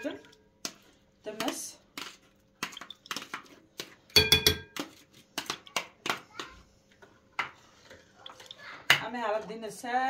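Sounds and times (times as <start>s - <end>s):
spoon clinking glass bowl: 4.1s - 4.8s.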